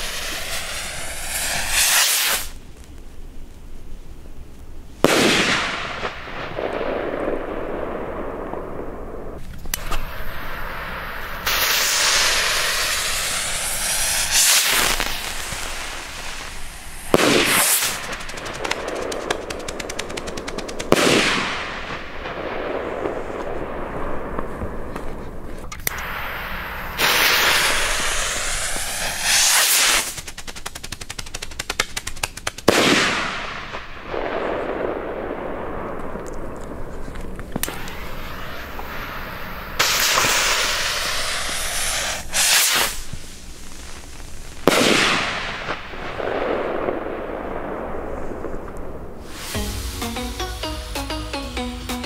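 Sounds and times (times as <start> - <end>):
rocket launch hiss: 0.0 - 2.6, 9.8 - 20.0, 25.9 - 30.7, 37.6 - 47.0, 49.2 - 52.0
strobe crackling: 0.0 - 3.7, 11.2 - 21.4, 25.8 - 32.7, 49.2 - 52.0.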